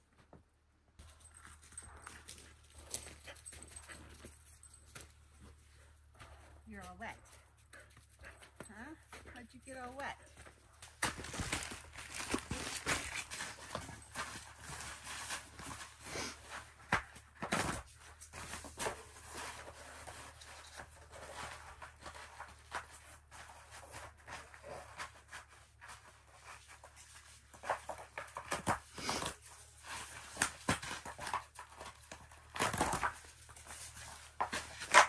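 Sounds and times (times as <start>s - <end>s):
foam tiles tapping and rustling: 10.8s - 35.0s.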